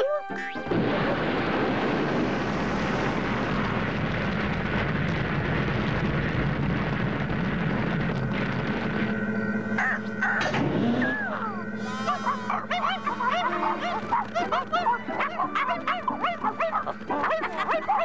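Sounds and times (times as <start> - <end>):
low hum: 0.6 - 15.3
cartoon rocket thrusters rushing: 9.8 - 14.1.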